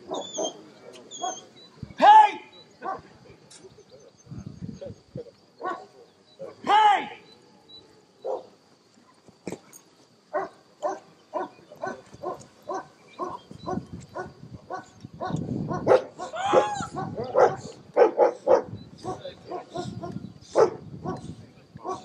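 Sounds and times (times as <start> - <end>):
dog barking: 0.1 - 0.6, 2.8 - 3.1, 5.6 - 6.0, 8.2 - 8.5, 10.3 - 22.0.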